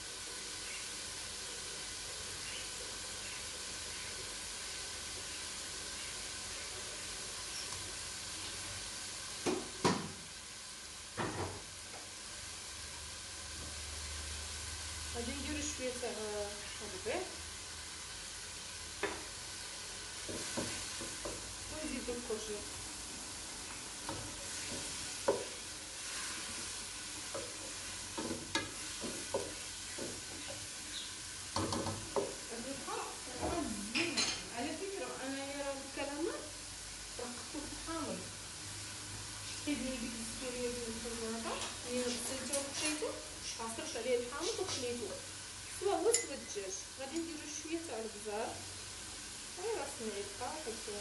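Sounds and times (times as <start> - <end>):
food sizzling in a pot: 0.0 - 51.0.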